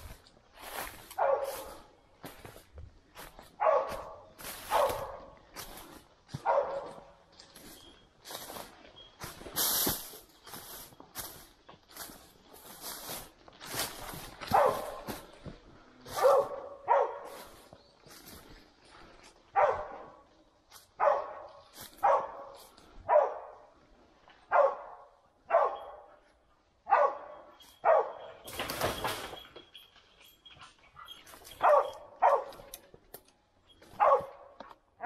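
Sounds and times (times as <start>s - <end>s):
footsteps rustling through dry litter: 0.0s - 23.0s, 31.1s - 33.1s, 33.7s - 34.7s
hound barking: 1.0s - 1.9s, 3.4s - 5.4s, 6.3s - 7.2s, 14.4s - 15.2s, 16.1s - 17.6s, 19.5s - 20.2s, 21.0s - 23.7s, 24.4s - 26.2s, 26.8s - 28.5s, 30.9s - 32.8s, 33.9s - 34.6s.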